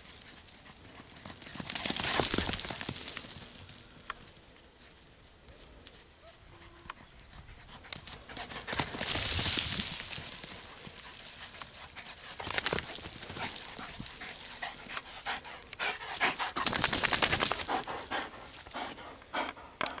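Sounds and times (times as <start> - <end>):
dog panting: 6.5 - 9.0, 10.5 - 20.0.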